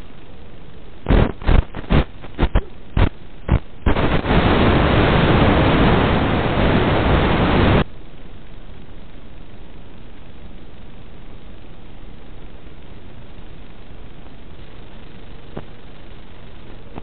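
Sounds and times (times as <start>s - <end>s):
radio static hiss: 0.0s - 17.0s.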